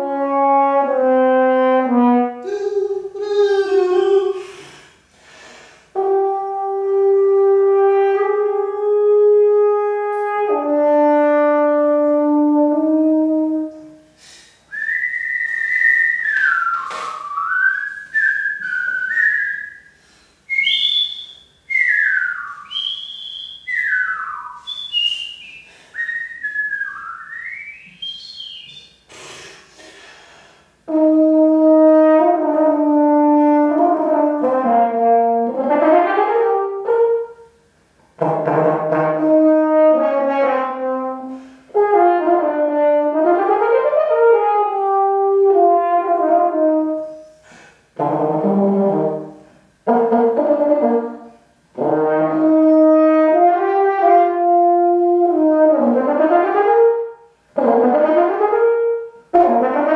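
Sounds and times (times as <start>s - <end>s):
french horn melody: 0.0s - 2.5s, 5.9s - 14.1s, 30.9s - 37.6s, 38.2s - 47.3s, 48.0s - 59.9s
high whistled phrases: 2.4s - 4.7s, 14.7s - 29.5s.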